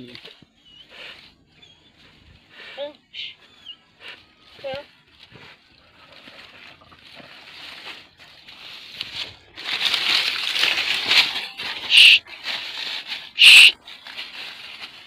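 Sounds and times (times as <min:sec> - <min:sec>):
leaves and undergrowth rustling: 0:00.0 - 0:15.0
sharp high-pitched sounds: 0:11.8 - 0:12.2.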